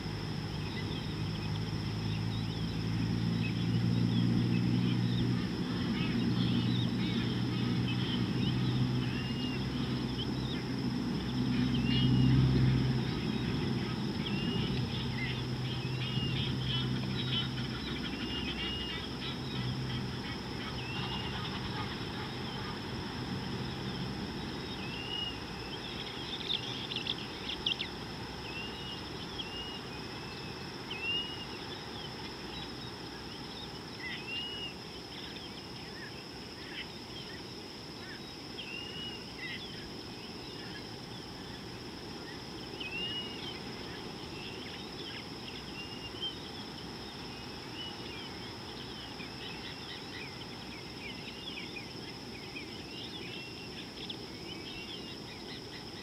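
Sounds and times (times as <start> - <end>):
low background rumble: 0.0 - 38.4
high insect drone: 0.0 - 56.0
wild birds chirping: 0.0 - 56.0
arched bird call: 13.1 - 23.1.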